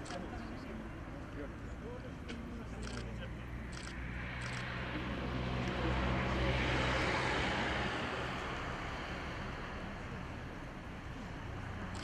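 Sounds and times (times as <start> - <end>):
vehicle passing by: 2.9 - 12.0.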